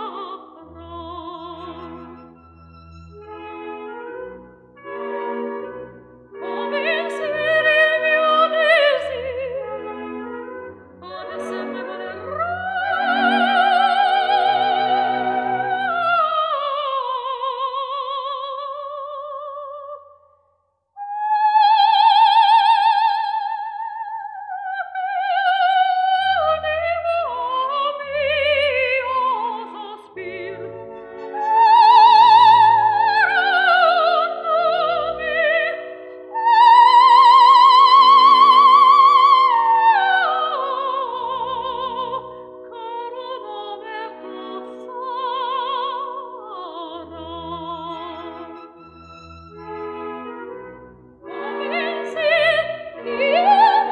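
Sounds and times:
operatic singing with vibrato: 0.0 - 2.3, 6.4 - 10.3, 11.0 - 20.1, 21.0 - 50.6, 51.2 - 53.9
instrumental accompaniment: 0.1 - 16.1, 43.8 - 53.9.

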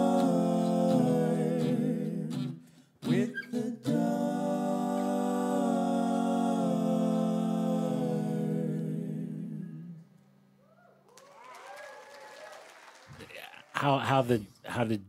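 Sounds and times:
faint wavering vocal sounds: 0.0 - 10.1
voices singing in close harmony: 0.0 - 10.2.

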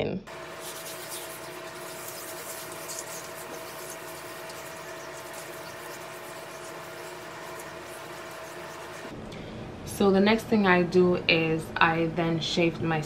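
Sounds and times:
scrub rubbing on skin: 0.3 - 9.1.

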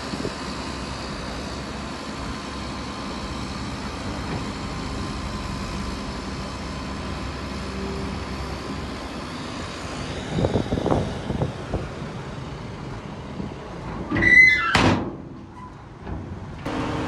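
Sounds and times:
heavy machinery working: 0.0 - 14.4, 15.2 - 17.0
metallic squeal: 14.1 - 14.8.

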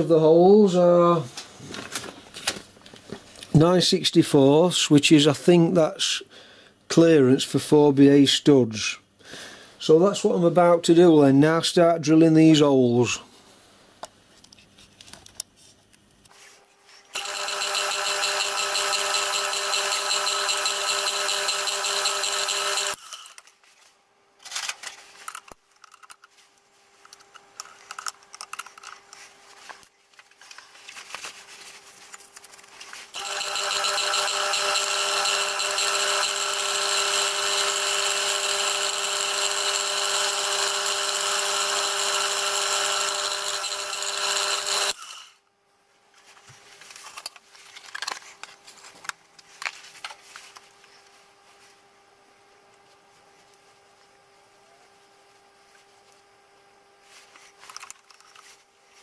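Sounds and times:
milling machine drilling metal: 17.2 - 23.0, 33.2 - 45.0.

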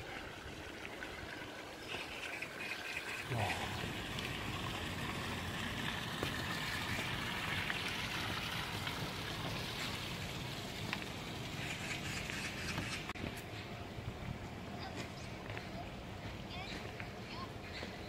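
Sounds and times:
stream rushing over rocks: 0.0 - 12.3.

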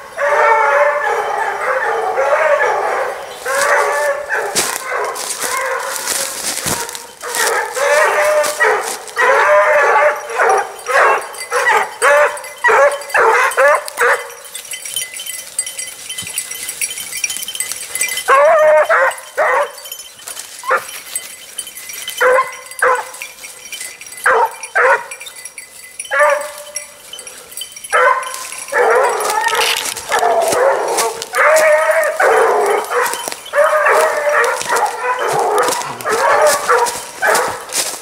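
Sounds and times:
hounds baying: 0.0 - 38.0.

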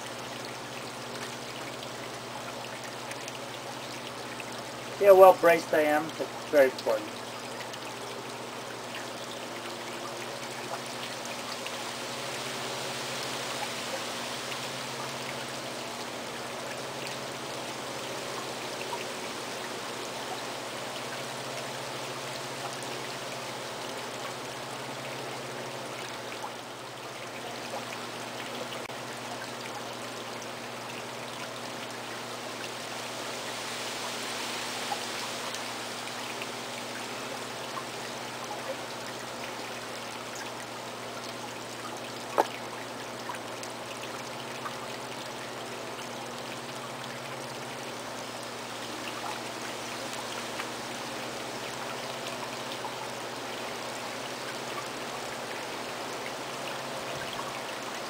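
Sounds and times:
potter's wheel humming: 4.9 - 7.2.

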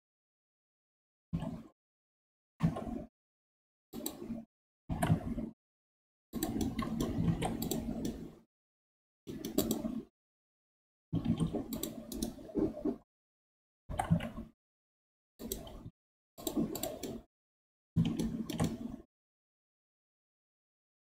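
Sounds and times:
mouse clicks: 6.4 - 8.2, 9.3 - 10.0, 16.4 - 17.2, 18.0 - 18.8.

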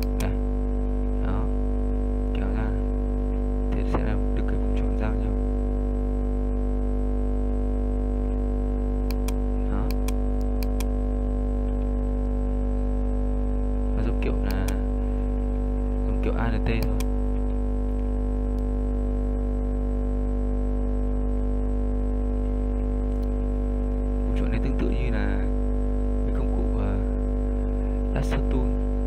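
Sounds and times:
sharp clicks: 0.0 - 0.4, 9.0 - 10.9, 14.4 - 14.8, 16.8 - 17.1
electrical mains hum: 0.0 - 29.0.

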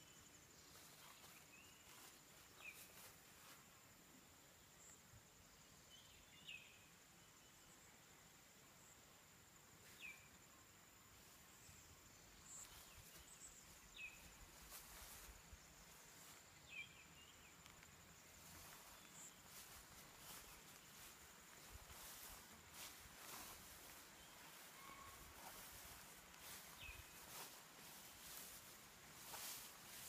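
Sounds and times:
high insect drone: 9.8 - 30.0.

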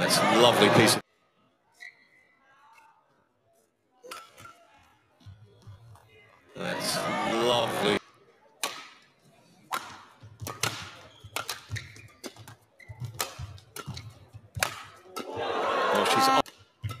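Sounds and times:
crowd noise: 0.0 - 1.2, 6.5 - 11.0, 13.6 - 16.5
racket striking shuttlecock: 8.6 - 9.0, 9.7 - 17.0.

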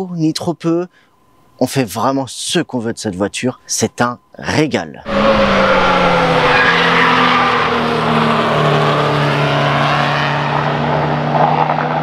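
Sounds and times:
race car engines: 5.0 - 12.0.

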